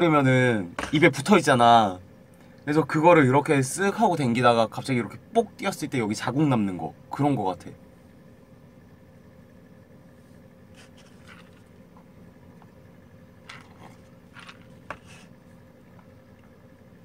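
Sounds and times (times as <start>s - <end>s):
faint room hum: 0.0s - 17.0s
sipping from a paper cup: 10.7s - 11.8s.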